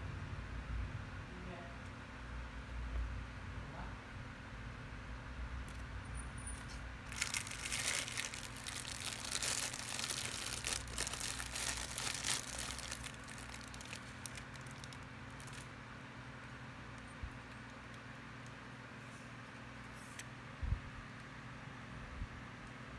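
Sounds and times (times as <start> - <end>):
plastic bag crinkling: 7.0 - 15.8.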